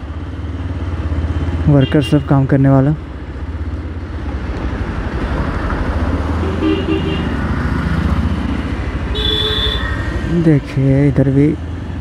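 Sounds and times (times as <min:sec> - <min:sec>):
road traffic: 0:00.0 - 0:12.0
vehicle horn: 0:01.8 - 0:02.2, 0:06.4 - 0:07.4, 0:09.1 - 0:10.0
horn toots: 0:09.1 - 0:10.0.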